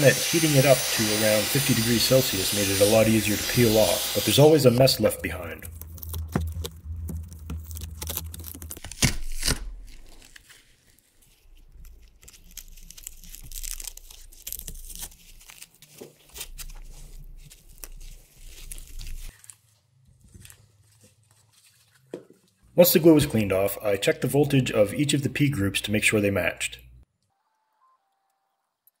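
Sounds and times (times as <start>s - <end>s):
tool scratching glue residue: 0.0s - 6.6s
plastic sheet tearing: 0.0s - 22.5s
faint short tone: 27.4s - 28.6s.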